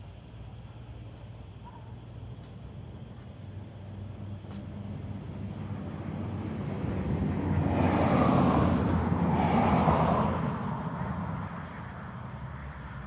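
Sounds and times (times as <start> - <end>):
car driving past: 4.8 - 13.0.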